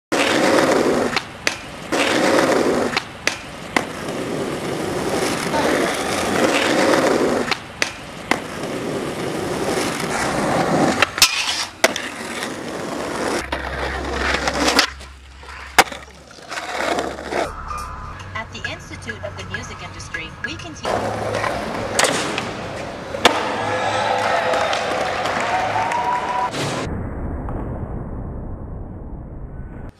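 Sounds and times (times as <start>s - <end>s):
skateboard popping and landing: 0.1s - 17.5s, 20.9s - 23.7s
skateboard wheels rolling on asphalt: 0.1s - 17.5s, 20.9s - 26.5s.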